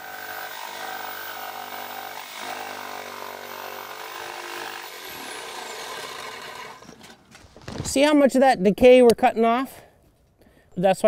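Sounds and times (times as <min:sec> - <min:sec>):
jigsaw cutting wood: 0:00.0 - 0:07.2.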